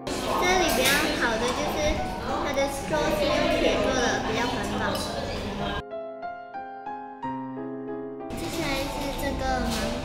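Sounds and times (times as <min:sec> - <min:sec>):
slow piano melody: 0:00.0 - 0:10.0.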